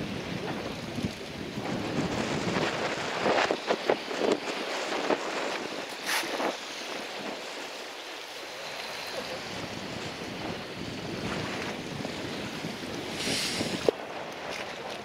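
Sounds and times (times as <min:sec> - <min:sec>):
wind on the microphone: 0:00.0 - 0:07.8, 0:09.0 - 0:15.0.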